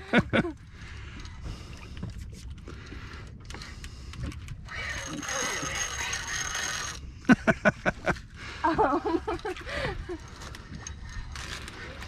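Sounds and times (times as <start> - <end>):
wind and water rumble: 0.0 - 12.0
fishing reel whirring: 4.6 - 7.1.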